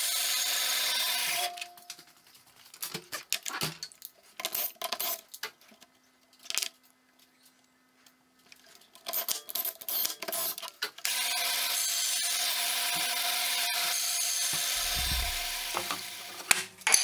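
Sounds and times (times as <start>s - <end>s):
bandsaw running: 14.6s - 16.0s.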